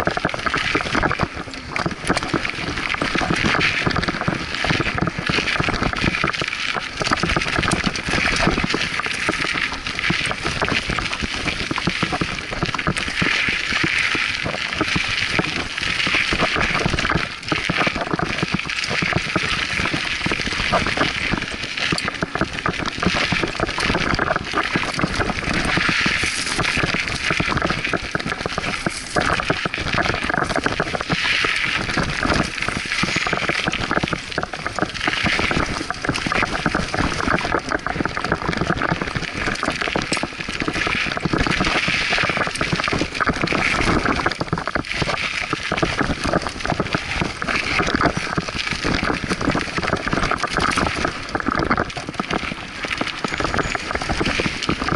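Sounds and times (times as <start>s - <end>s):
bike rattling: 25.6s - 27.9s, 28.8s - 29.2s.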